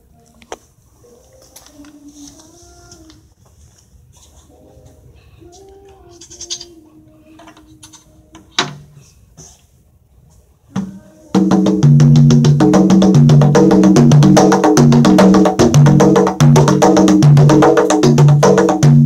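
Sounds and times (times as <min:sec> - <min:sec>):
conga drums played by hand: 0:10.8 - 0:19.0.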